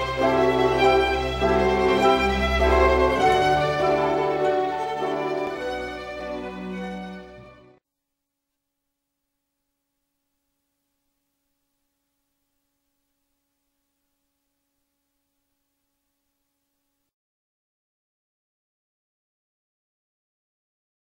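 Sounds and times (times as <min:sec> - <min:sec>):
orchestral string music: 0:00.0 - 0:07.8.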